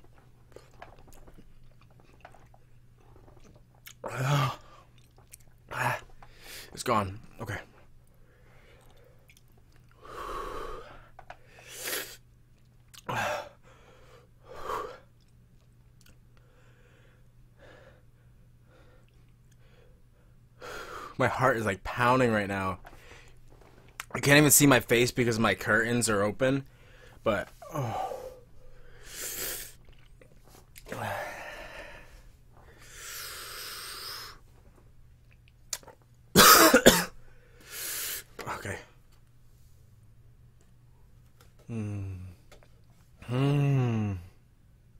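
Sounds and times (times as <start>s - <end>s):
man gasping breaths: 30.9s - 34.4s.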